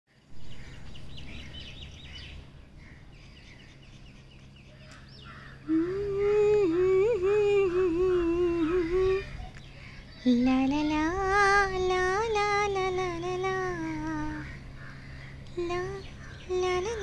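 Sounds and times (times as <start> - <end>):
birds chirping: 0.1 - 17.0
low outdoor background rumble: 0.1 - 17.0
person humming: 5.7 - 9.6, 10.2 - 14.5, 15.5 - 17.0.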